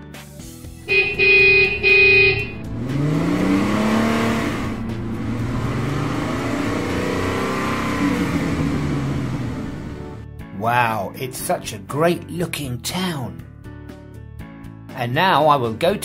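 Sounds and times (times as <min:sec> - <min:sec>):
car horn honks: 0:00.8 - 0:05.6
car engine revving: 0:00.8 - 0:10.2.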